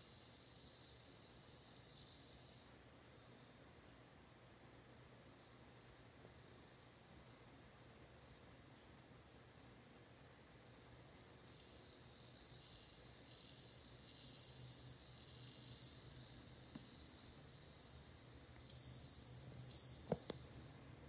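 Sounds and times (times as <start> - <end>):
cricket high-pitched trill: 0.0 - 2.8, 11.2 - 20.6.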